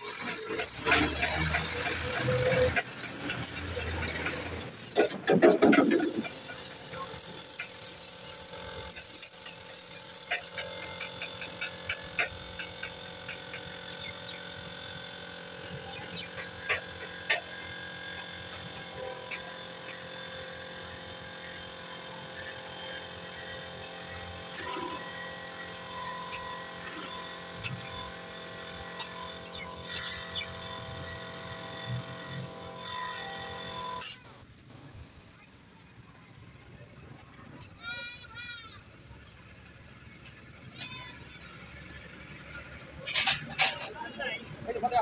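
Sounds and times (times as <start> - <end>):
air hissing from hose: 0.0 - 11.0.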